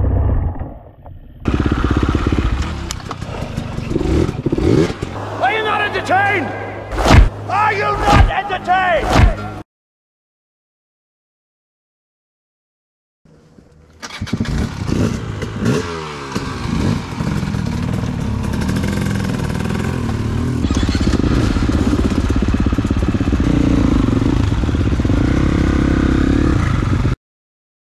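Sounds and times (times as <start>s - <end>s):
dirt bike engine revving: 1.5s - 8.2s, 14.1s - 27.2s.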